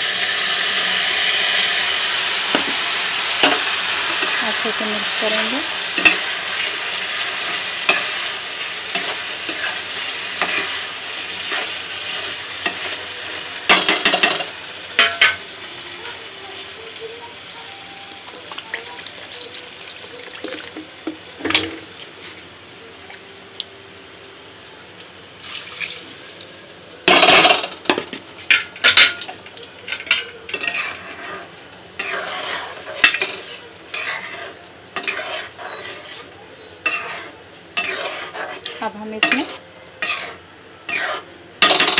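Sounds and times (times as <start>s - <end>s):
rice sizzling in a pan: 0.0s - 41.9s
spatula scraping and knocking pan: 8.9s - 10.8s, 29.9s - 41.9s.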